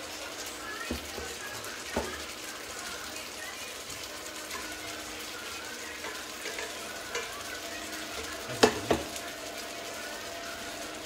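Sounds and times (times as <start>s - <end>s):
cooking sizzling hiss: 0.0s - 11.0s
metal pot clanking on hob: 6.0s - 7.4s, 8.2s - 9.2s.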